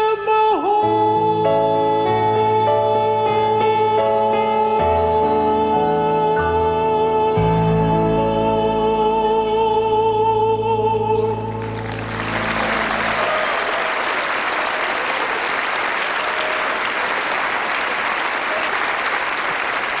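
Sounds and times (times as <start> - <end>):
man singing with vibrato: 0.0 - 11.6
backing music: 11.0 - 19.0
audience applause: 11.6 - 20.0.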